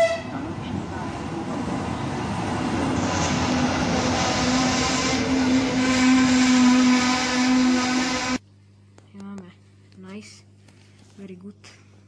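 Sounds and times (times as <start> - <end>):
train wheels rumbling on rail: 0.0 - 8.4
low hum: 0.2 - 10.5.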